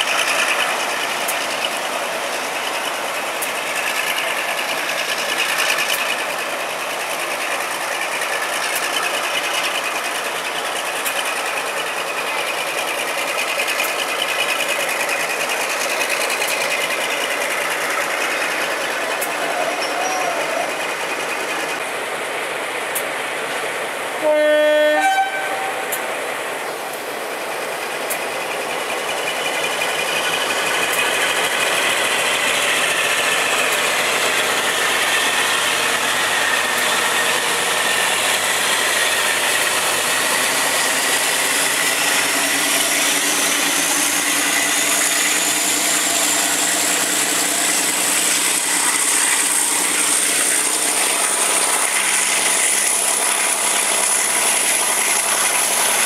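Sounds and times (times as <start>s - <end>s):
diesel engines with rising whine: 0.0s - 56.0s
locomotive horn two notes: 24.2s - 26.0s.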